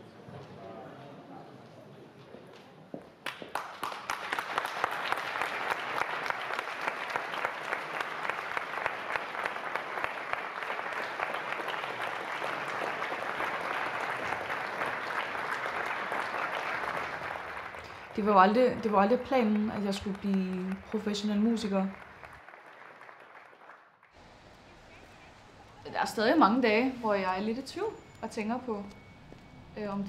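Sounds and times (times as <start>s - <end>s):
audience applauding: 3.2s - 24.1s.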